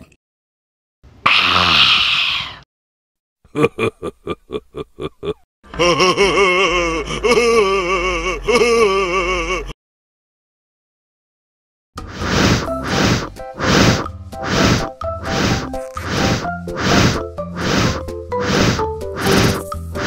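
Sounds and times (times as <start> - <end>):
breathy gasp: 1.3 - 2.6
person laughing: 3.5 - 9.7.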